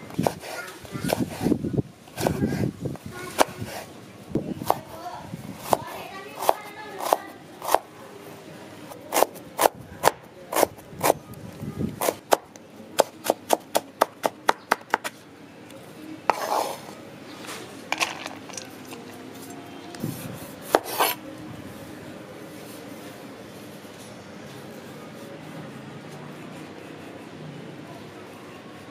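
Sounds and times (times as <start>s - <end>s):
knife scraping board: 0.2s - 1.6s, 3.3s - 3.9s, 16.3s - 19.5s, 20.3s - 21.2s
knife chopping on wooden board: 20.7s - 21.2s.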